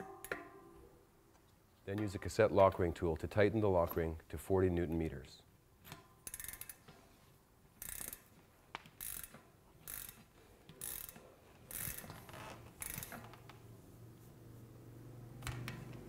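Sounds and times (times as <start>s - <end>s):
ratchet wrench clicking: 5.8s - 6.9s, 7.8s - 12.2s, 12.8s - 13.4s.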